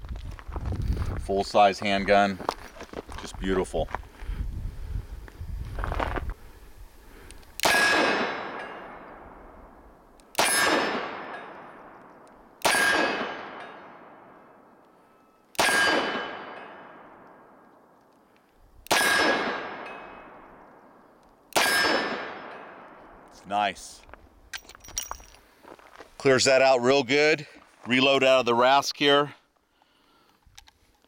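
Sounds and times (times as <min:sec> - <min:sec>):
revolver shots with echo: 0:12.6 - 0:14.2, 0:15.6 - 0:17.2, 0:18.9 - 0:20.4.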